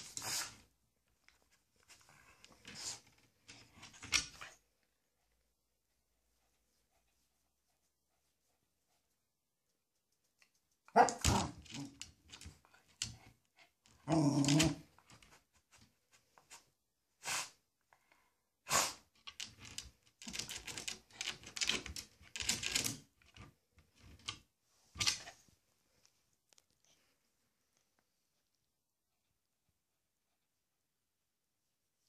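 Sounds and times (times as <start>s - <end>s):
dog barking: 10.9s - 11.3s.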